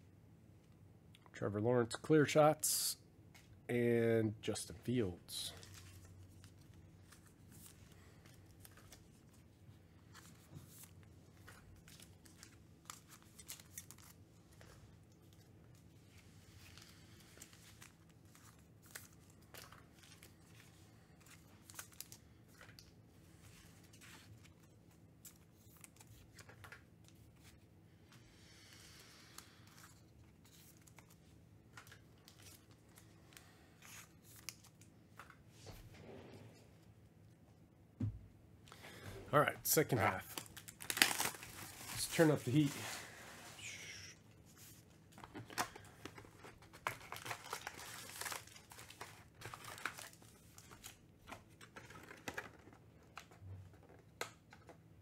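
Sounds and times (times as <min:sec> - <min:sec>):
wrappers tearing and crinkling: 0:11.7 - 0:14.6, 0:39.7 - 0:43.0, 0:45.4 - 0:52.6.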